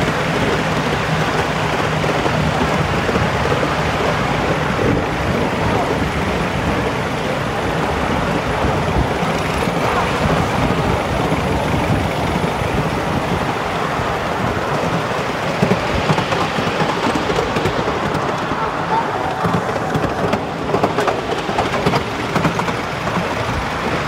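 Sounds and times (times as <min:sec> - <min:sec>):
train knocks: 0:00.0 - 0:24.0
train wheels rumbling on rails: 0:00.0 - 0:24.0.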